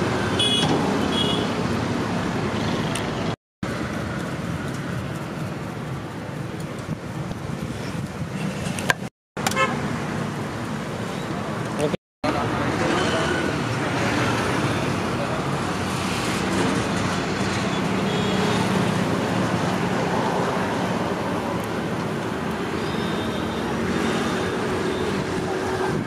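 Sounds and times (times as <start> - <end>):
road traffic rumble: 0.0 - 26.0.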